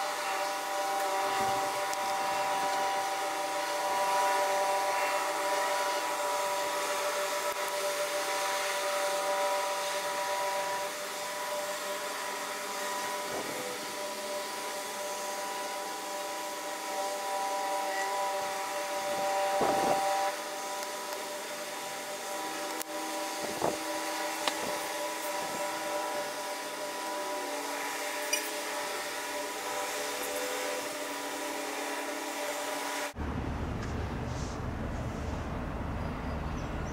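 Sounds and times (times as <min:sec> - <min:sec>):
high whirring hum: 0:00.0 - 0:36.9.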